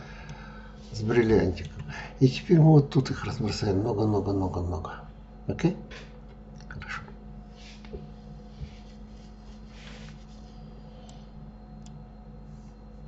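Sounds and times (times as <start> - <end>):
low electrical hum: 0.0 - 13.0
soft rustles: 7.5 - 10.8.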